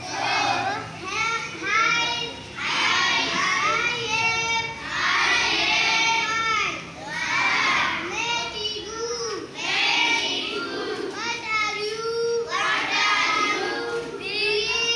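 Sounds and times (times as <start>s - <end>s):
children reading aloud together: 0.0s - 14.9s.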